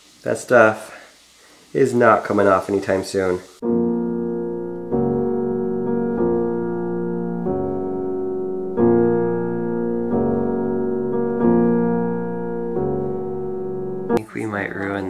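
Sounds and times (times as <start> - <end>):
slow piano chords: 3.6 - 15.0.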